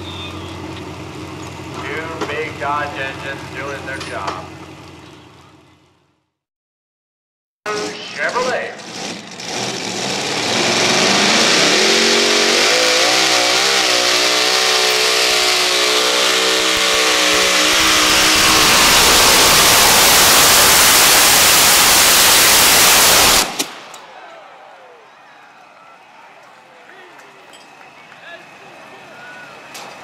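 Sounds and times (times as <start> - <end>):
tractor engines at full throttle: 0.0 - 6.0, 7.7 - 24.5.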